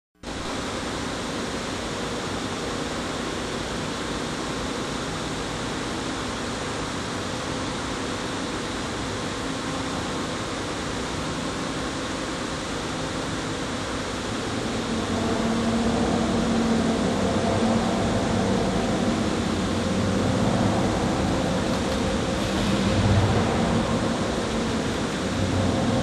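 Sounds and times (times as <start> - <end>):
faint steady hum: 0.3 - 26.0
steady rushing noise: 11.9 - 26.0.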